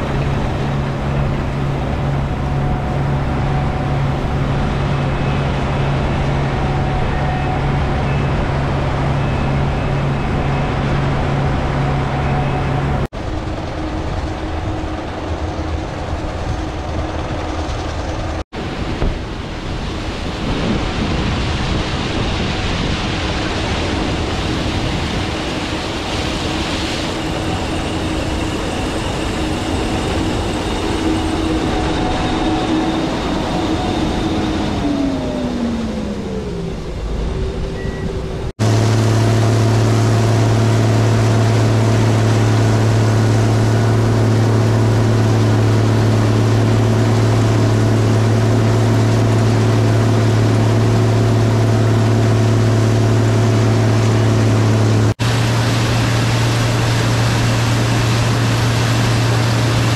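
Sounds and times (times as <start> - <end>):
combine harvester running: 0.0 - 59.9
low drone of combine engine: 0.0 - 59.9.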